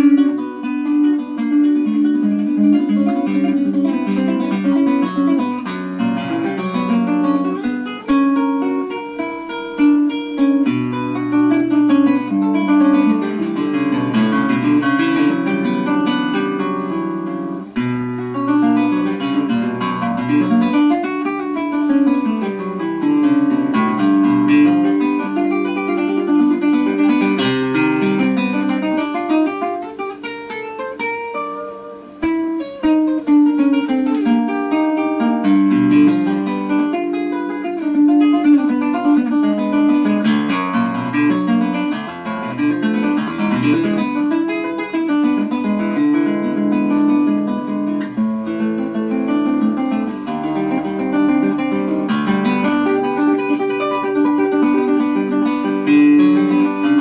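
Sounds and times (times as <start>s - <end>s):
fingerstyle guitar playing: 0.0s - 57.0s.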